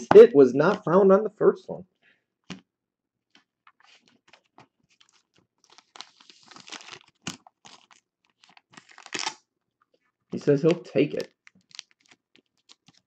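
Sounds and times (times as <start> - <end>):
thin plastic crinkling and clicking: 3.3 - 13.0.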